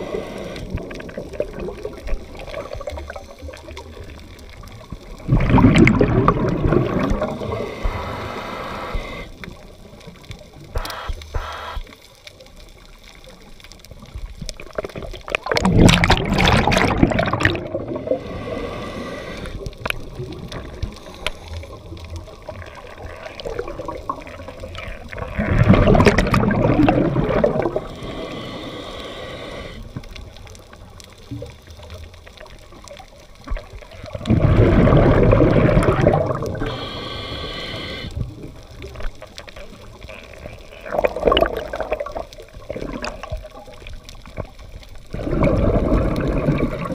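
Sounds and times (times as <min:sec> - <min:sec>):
high underwater hiss: 0:00.0 - 0:00.8, 0:06.8 - 0:09.4, 0:10.7 - 0:11.9, 0:17.7 - 0:19.6, 0:26.6 - 0:29.9, 0:34.6 - 0:38.2
underwater rushing bubbling water: 0:00.0 - 0:10.8, 0:12.6 - 0:46.9.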